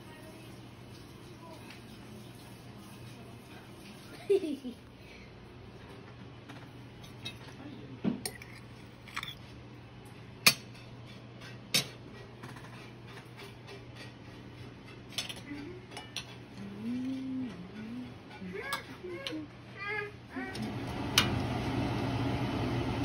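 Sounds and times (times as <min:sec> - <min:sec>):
cutlery clinking on plates: 0:10.4 - 0:16.7.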